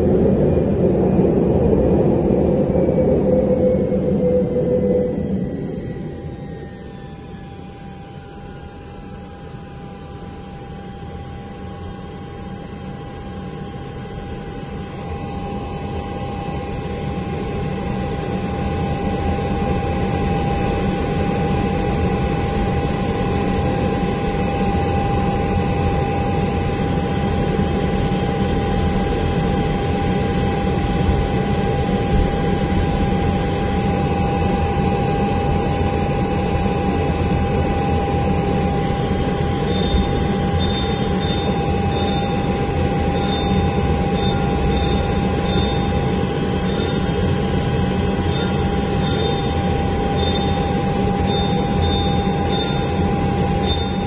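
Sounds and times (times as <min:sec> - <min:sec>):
jet engines droning: 0:00.0 - 0:54.0
short high beeps: 0:39.7 - 0:42.5, 0:43.2 - 0:46.0, 0:46.7 - 0:47.2, 0:48.3 - 0:49.6, 0:50.2 - 0:53.0, 0:53.6 - 0:54.0.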